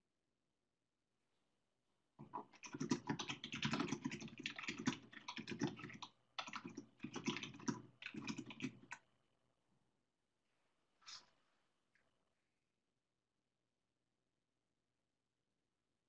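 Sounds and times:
computer keyboard typing: 0:02.2 - 0:09.0.

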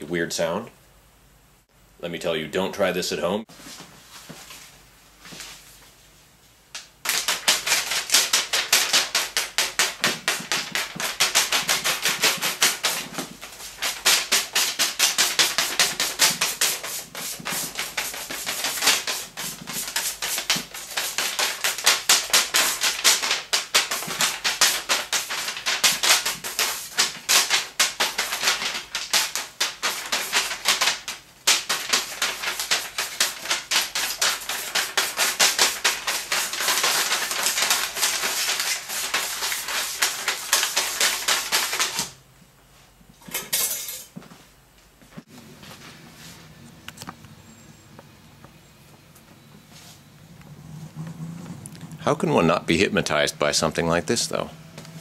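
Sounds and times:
fan blades slapping paper: 0:06.7 - 0:42.2.

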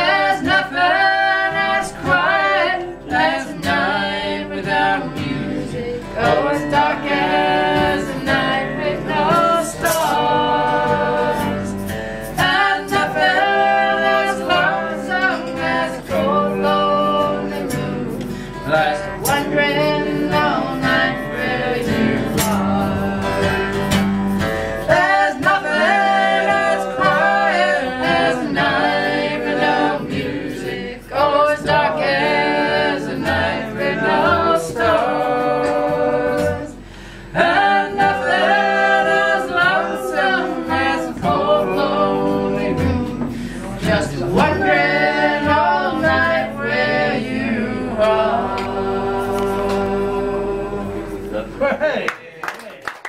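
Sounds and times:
woman singing: 0:00.0 - 0:23.9, 0:24.9 - 0:36.8, 0:37.4 - 0:51.3
acoustic guitar: 0:00.0 - 0:52.0.

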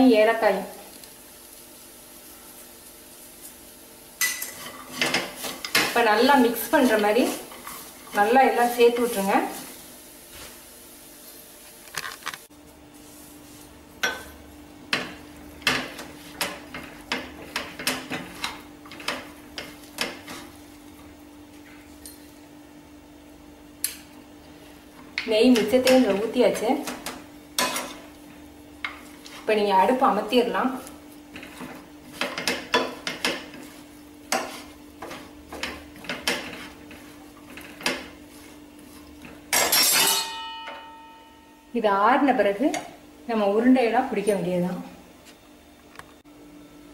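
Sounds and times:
steel spoon scraping a frying pan: 0:04.2 - 0:06.0, 0:06.7 - 0:09.6, 0:31.3 - 0:40.5
metallic clang: 0:39.5 - 0:41.4.

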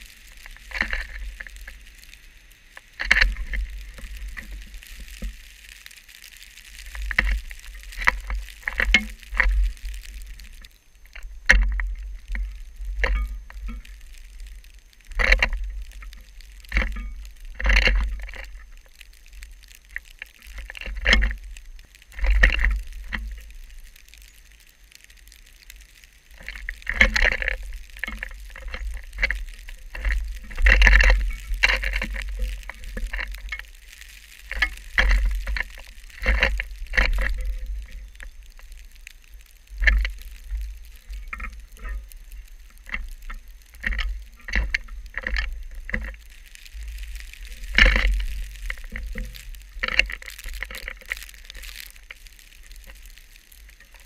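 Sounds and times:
wind gusting on camera: 0:26.3 - 0:54.0.

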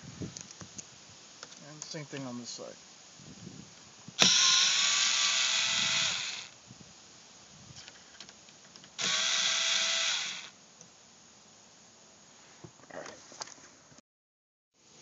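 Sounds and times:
power screwdriver running: 0:04.2 - 0:06.6, 0:09.0 - 0:10.5.

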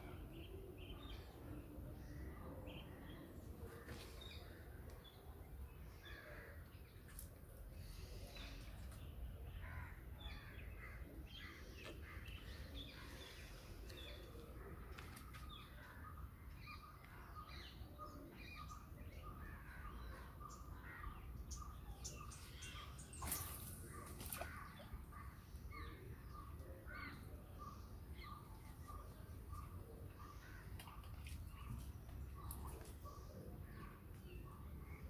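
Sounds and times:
birds chirping and calling: 0:07.2 - 0:35.0.

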